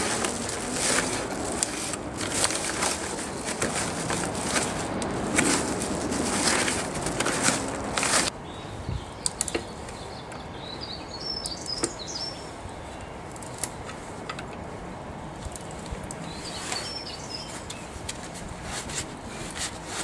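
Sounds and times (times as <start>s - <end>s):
birds chirping: 5.7s - 13.9s, 16.1s - 18.0s.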